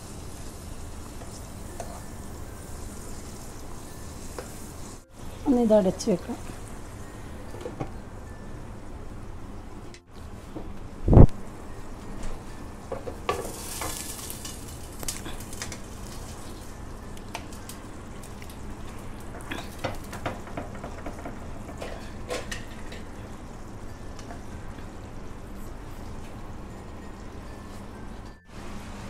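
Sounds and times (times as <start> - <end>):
gravy sizzling in a pan: 0.0 - 8.2, 12.9 - 26.2.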